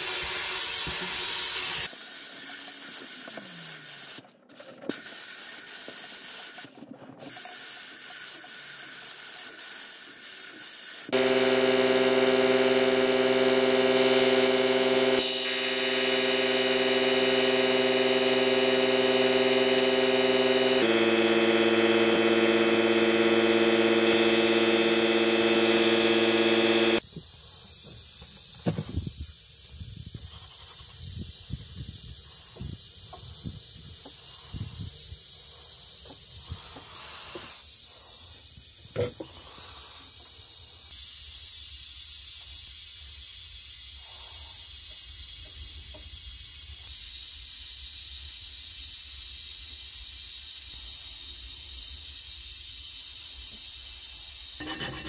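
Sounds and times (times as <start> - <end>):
sandblasting equipment hum: 10.0 - 27.0, 54.6 - 55.0.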